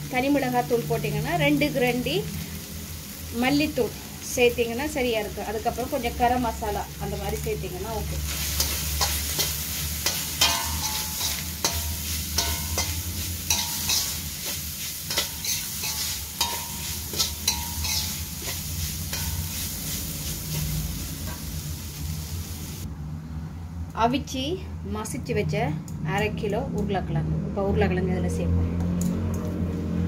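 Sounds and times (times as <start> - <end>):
meat sizzling: 0.0 - 22.9
spatula scraping a metal pan: 8.3 - 21.5.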